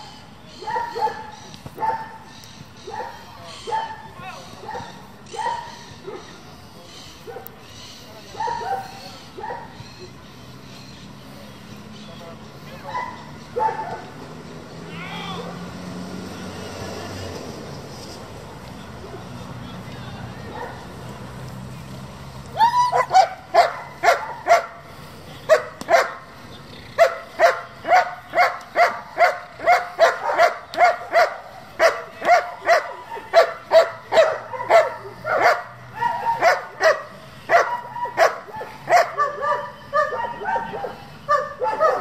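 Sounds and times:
dog barking rapidly: 0.6s - 2.2s, 2.9s - 6.2s, 12.9s - 14.1s, 22.9s - 24.8s, 25.5s - 26.2s, 26.9s - 42.0s.

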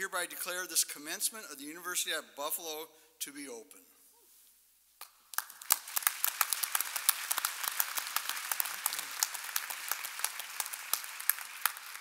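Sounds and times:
audience applauding: 5.3s - 12.0s.

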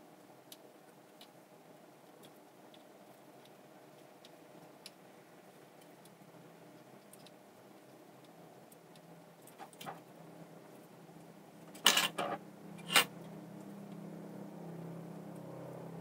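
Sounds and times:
faint steady hum: 0.0s - 16.0s
soft ticks and clicks: 2.0s - 5.0s, 5.8s - 7.4s.

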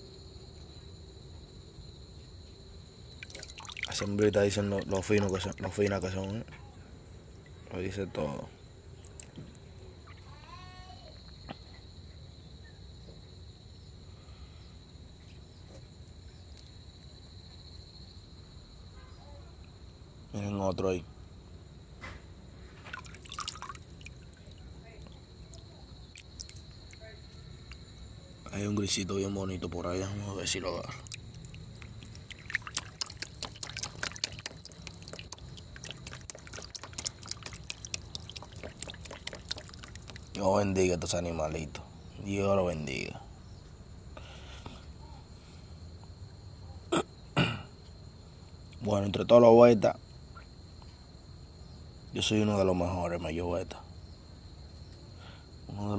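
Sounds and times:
insects chirring: 0.0s - 55.9s
pond water splashing: 3.1s - 6.4s, 22.7s - 26.8s, 30.4s - 41.2s.

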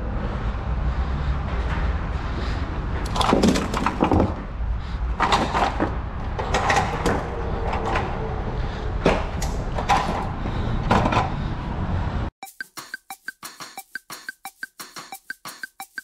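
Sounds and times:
road noise: 0.0s - 12.4s
sharp knocks and clattering rattles: 1.5s - 8.2s, 9.0s - 11.4s, 12.4s - 16.0s.

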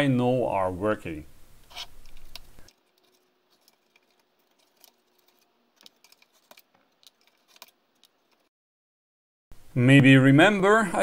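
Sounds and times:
screwdriver clicks and scrapes: 1.6s - 8.5s.

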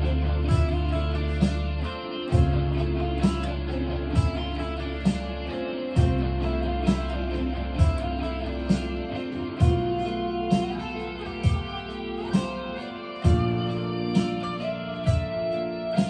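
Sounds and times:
electric guitar playing: 0.0s - 16.0s
held bass notes: 0.0s - 16.0s
kick drum: 0.4s - 5.4s, 6.0s - 8.4s, 9.6s - 10.7s, 11.3s - 12.6s, 13.2s - 14.3s, 15.0s - 15.5s.

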